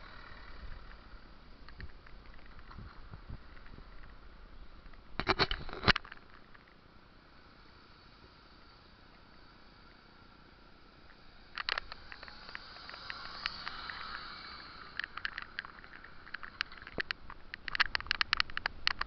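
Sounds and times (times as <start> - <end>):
sharp clicks and rattles: 0.0 - 6.8, 10.8 - 19.0
scooter wheels rolling on asphalt: 0.0 - 19.0.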